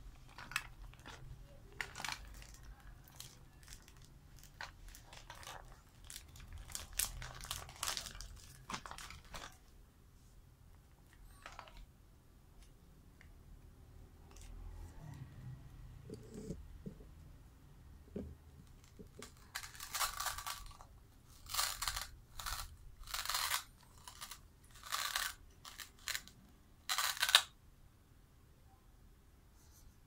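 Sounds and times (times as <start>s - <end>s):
plastic crinkling: 0.2s - 9.7s, 18.6s - 26.3s.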